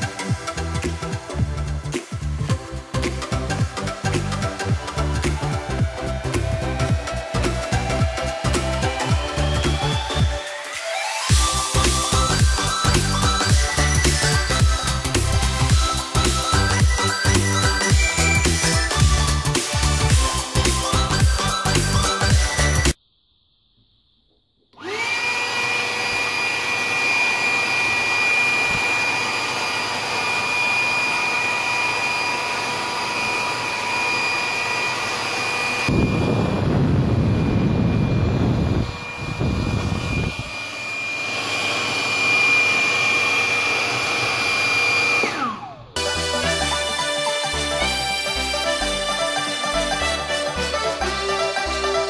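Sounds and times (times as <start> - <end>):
hand dryer motor whine: 0.0 - 23.0, 24.8 - 52.0
deeper air rush: 35.9 - 40.6.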